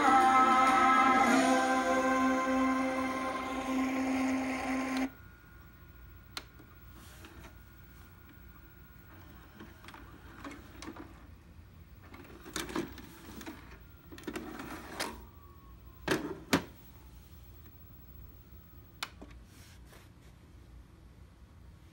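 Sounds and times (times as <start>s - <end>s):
faint falling whine: 0.0s - 19.0s
click: 6.3s - 6.6s, 19.0s - 19.3s
tape mechanism whirring and clattering: 12.0s - 15.4s.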